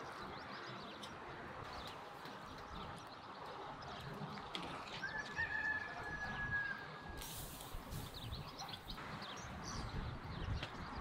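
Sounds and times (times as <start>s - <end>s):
rooster crowing: 5.0s - 6.9s
hiss: 7.2s - 8.4s.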